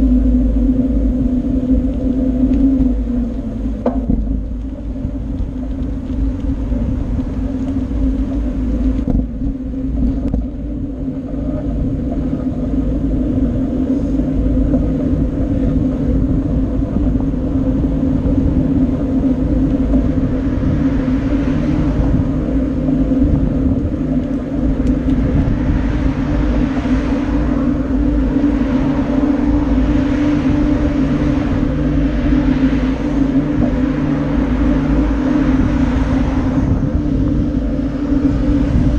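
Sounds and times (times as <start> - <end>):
bicycle rolling hum: 0.0 - 38.9
wind buffeting microphone: 0.0 - 38.9.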